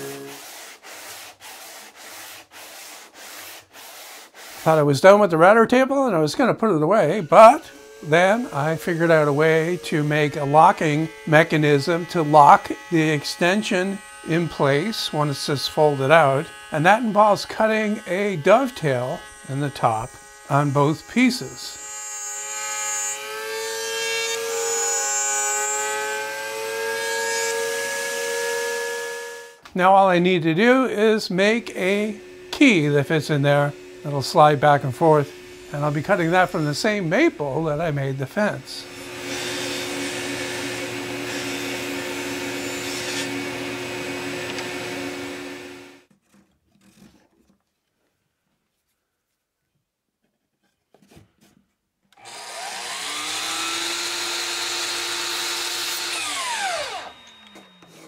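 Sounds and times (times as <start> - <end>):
router whining while cutting wood: 0.0 - 2.1, 7.1 - 29.6, 31.4 - 46.1, 52.2 - 58.0
power tool humming: 0.0 - 4.6, 7.1 - 29.6, 31.4 - 46.0, 52.2 - 58.0.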